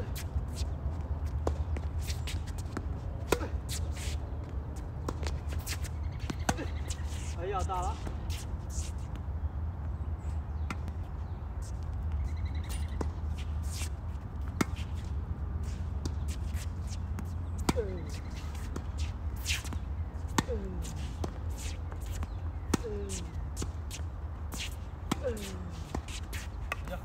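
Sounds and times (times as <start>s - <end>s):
racket hitting tennis ball: 1.4s - 4.2s, 15.7s - 27.0s.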